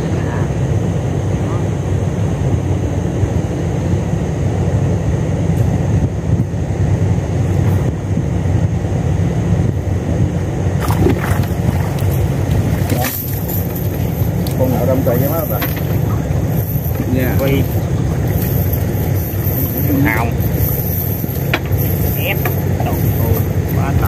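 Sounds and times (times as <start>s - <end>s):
small boat engine running: 9.1s - 24.0s
water splashes: 10.8s - 14.2s.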